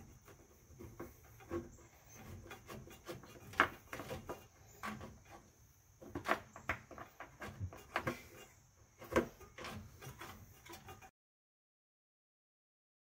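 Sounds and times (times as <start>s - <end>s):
strap clicking and scraping: 0.0s - 11.1s.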